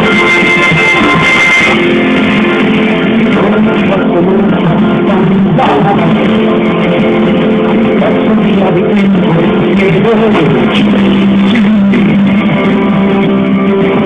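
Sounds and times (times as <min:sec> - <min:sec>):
electric guitars: 0:00.0 - 0:14.0
live rock band playing: 0:00.0 - 0:14.0.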